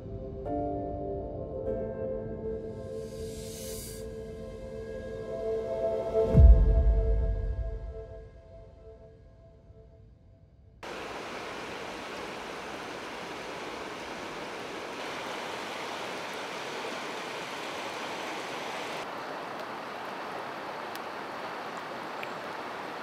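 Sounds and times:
river water rushing over stones: 0:10.8 - 0:23.0.

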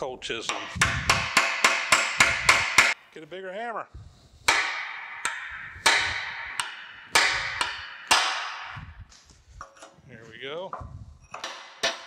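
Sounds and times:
hammer striking steel chisel: 0:00.4 - 0:03.0, 0:04.4 - 0:09.0, 0:11.2 - 0:12.0.

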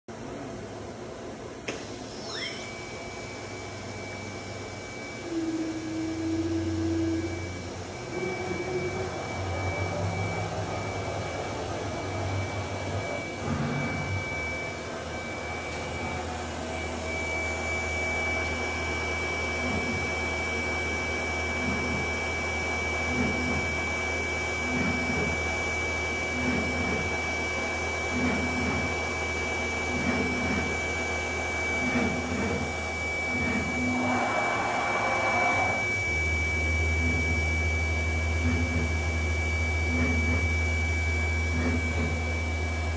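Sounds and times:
low machine hum: 0:00.1 - 0:42.9
router spindle high-pitched whine: 0:01.7 - 0:42.9
low repeating pulse: 0:02.6 - 0:18.4.

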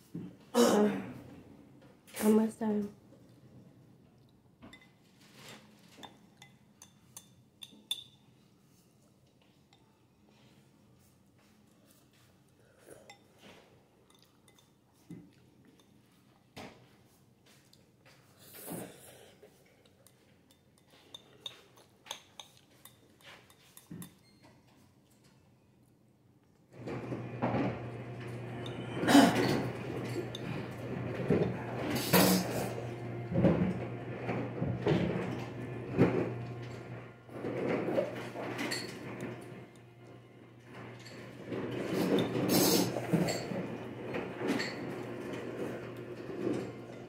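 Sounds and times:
eating and sipping mouth sounds: 0:42.0 - 0:43.4.

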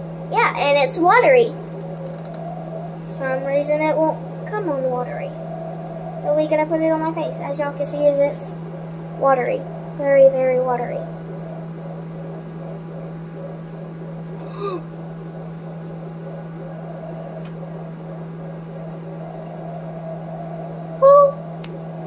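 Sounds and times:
fan humming: 0:00.0 - 0:22.0
short vocal sound: 0:14.4 - 0:14.9.

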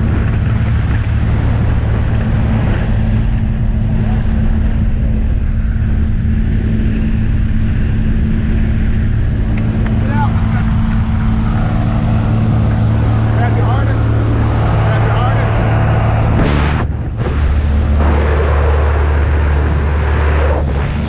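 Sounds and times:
propeller plane engine droning: 0:00.0 - 0:21.0
air rushing through open door: 0:10.6 - 0:20.7.

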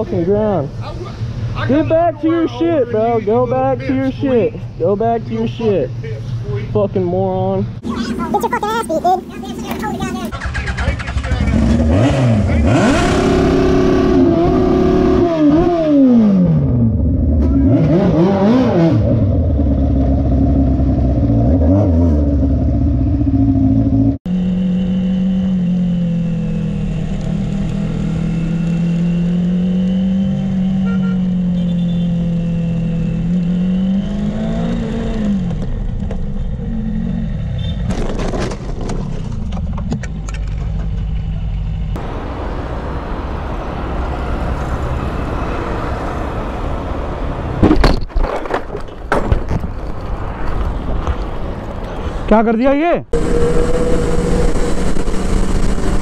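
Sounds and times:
motorcycle engine revving: 0:07.8 - 0:38.0, 0:53.2 - 0:56.0.

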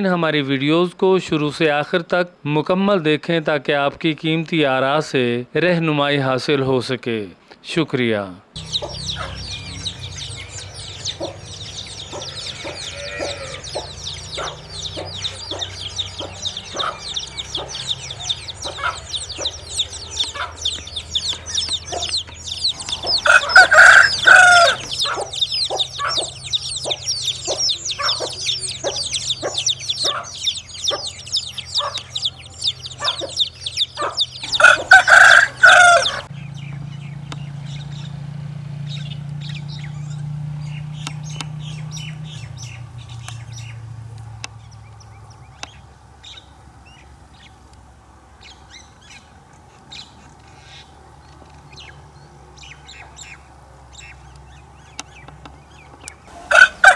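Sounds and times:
rooster crowing: 0:08.6 - 0:20.6, 0:22.6 - 0:26.4, 0:34.0 - 0:36.3, 0:56.3 - 0:56.9
hen clucking: 0:08.6 - 0:36.3, 0:56.3 - 0:56.9
chicks peeping: 0:08.6 - 0:38.2, 0:54.0 - 0:56.9.

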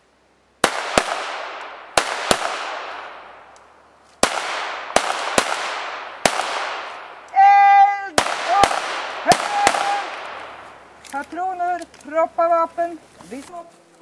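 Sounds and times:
pistol shots echoing: 0:00.6 - 0:03.5, 0:04.2 - 0:07.3, 0:08.2 - 0:10.7.

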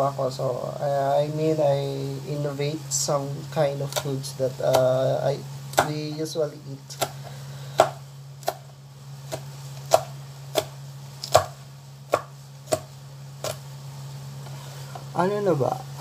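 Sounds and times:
steady low hum: 0:00.0 - 0:16.0
knife chopping on cutting board: 0:05.7 - 0:06.0, 0:06.9 - 0:08.7, 0:09.3 - 0:13.6.

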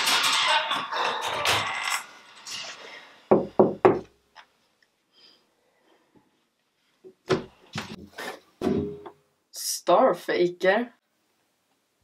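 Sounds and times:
knocks on a door: 0:03.3 - 0:04.0.

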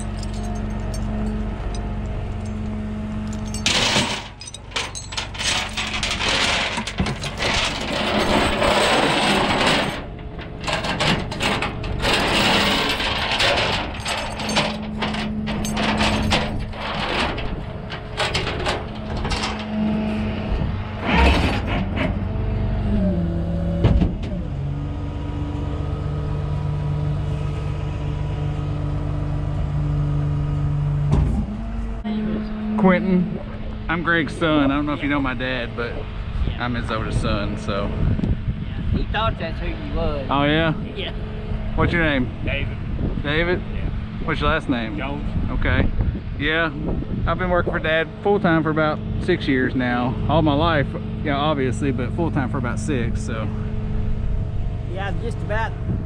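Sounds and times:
truck engine idling: 0:00.0 - 0:08.5
metal clanking and scraping: 0:00.0 - 0:22.3.

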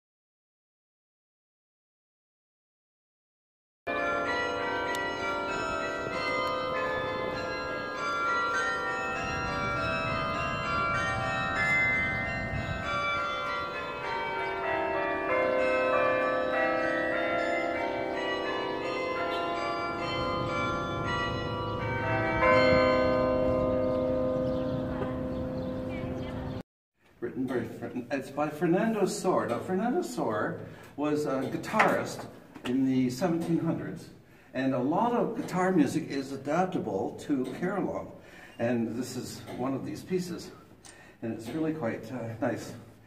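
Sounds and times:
carillon bells playing a tune: 0:03.9 - 0:26.4.

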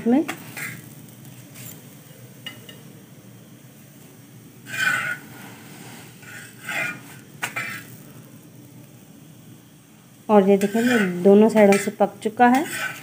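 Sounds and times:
metal spatula scraping griddle: 0:00.3 - 0:01.9, 0:04.6 - 0:08.0, 0:10.5 - 0:13.0.

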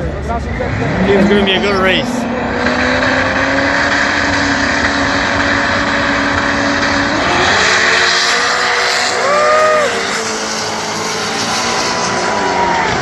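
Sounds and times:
drag car engines revving: 0:00.0 - 0:13.0.

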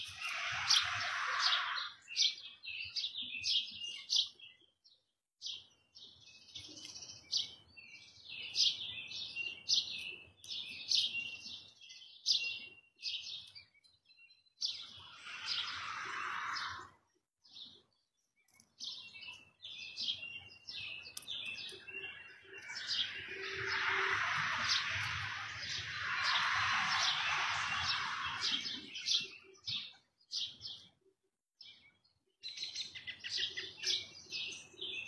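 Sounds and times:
small birds chirping: 0:00.0 - 0:31.0, 0:31.6 - 0:35.0
rushing hiss: 0:23.5 - 0:28.8.

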